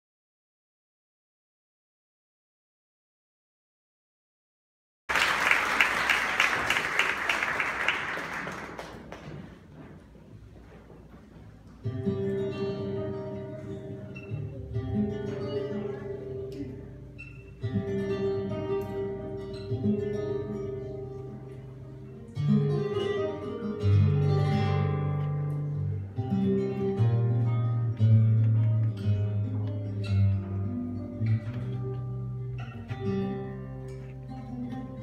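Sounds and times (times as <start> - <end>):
slow tango guitar music: 11.4 - 35.0.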